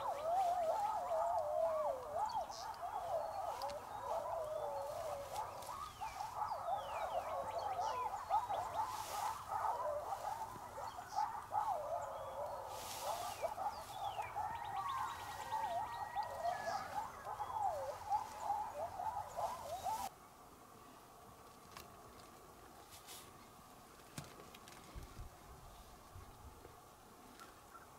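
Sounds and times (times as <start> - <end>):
coyotes howling and yipping: 0.0 - 20.1.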